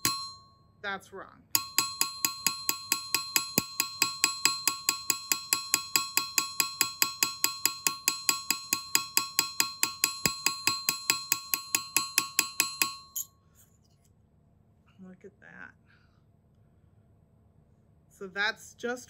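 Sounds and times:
hammer striking metal on anvil: 0:00.0 - 0:00.4, 0:01.6 - 0:13.3.

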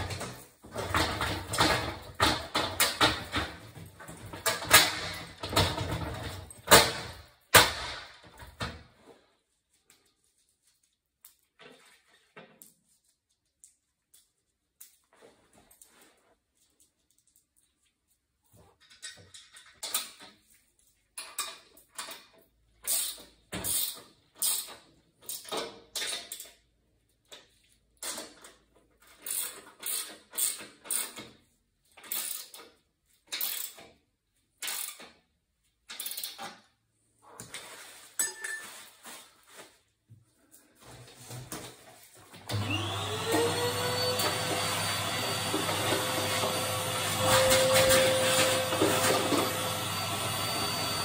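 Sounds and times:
vacuum cleaner whining: 0:42.4 - 0:51.0
hand tool scraping metal: 0:47.1 - 0:49.5.

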